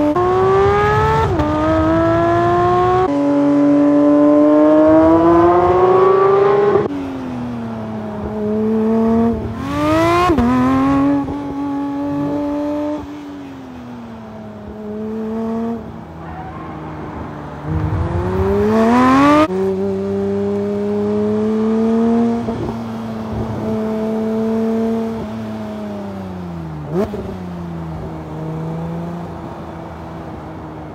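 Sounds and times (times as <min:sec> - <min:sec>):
car engine revving hard: 0:00.1 - 0:06.9, 0:17.7 - 0:19.5.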